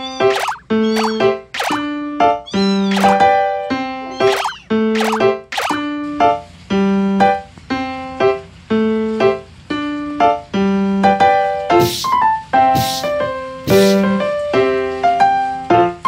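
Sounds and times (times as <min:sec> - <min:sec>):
electric piano tune: 0:00.0 - 0:16.0
hissy swishes: 0:11.8 - 0:12.2, 0:12.8 - 0:13.1, 0:13.7 - 0:14.1.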